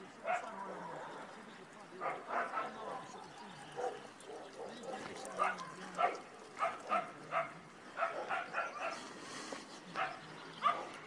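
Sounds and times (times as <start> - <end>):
dog barking: 2.0 - 3.1, 3.8 - 9.0, 10.0 - 11.0.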